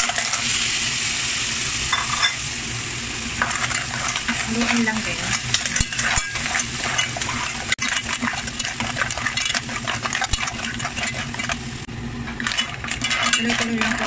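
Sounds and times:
oil and sauce sizzling: 0.0s - 14.0s.

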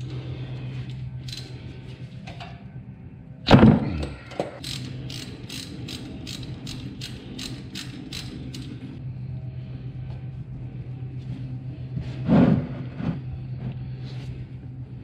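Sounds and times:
ratchet wrench clicking: 1.2s - 1.5s, 4.6s - 8.7s.

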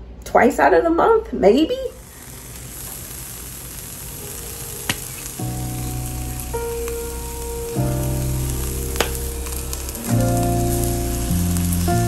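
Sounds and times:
onions sizzling in a frying pan: 1.8s - 12.0s
background music with sustained chords: 3.8s - 12.0s.

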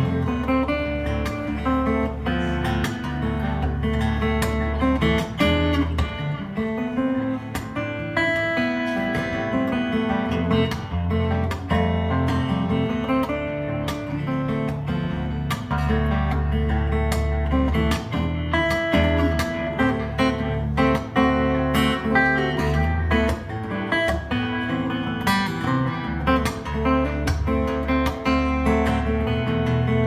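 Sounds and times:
fingerstyle acoustic guitar: 0.0s - 30.0s
percussive hits on guitar: 25.2s - 29.9s.

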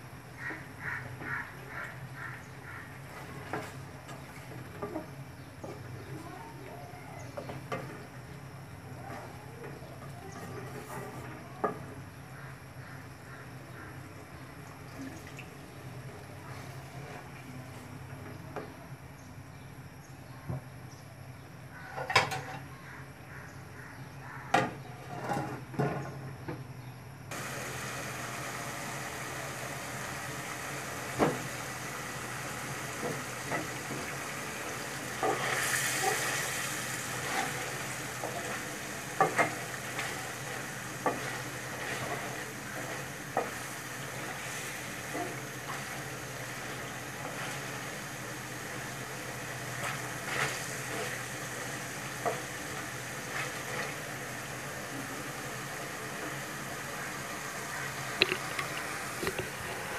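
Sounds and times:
fish sizzling in oil: 27.3s - 59.9s.

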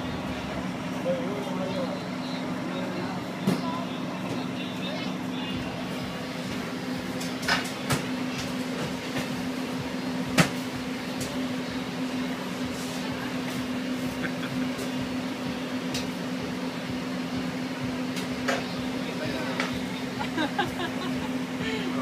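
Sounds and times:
kitchen equipment hum: 0.0s - 22.0s.

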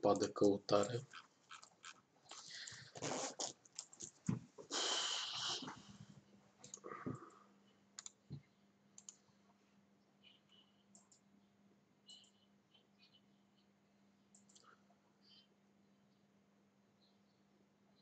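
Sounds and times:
computer mouse and keyboard clicks: 0.2s - 4.4s, 8.0s - 8.2s, 9.0s - 9.2s, 14.3s - 14.7s
faint low hum: 3.6s - 18.0s.

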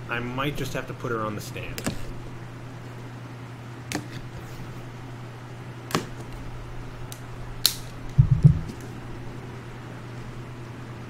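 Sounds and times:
low thumps: 8.1s - 8.8s.

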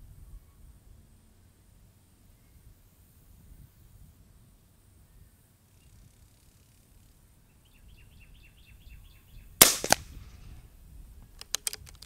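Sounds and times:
bird chirping: 7.5s - 9.6s
air rifle shot crack: 9.6s - 10.4s.

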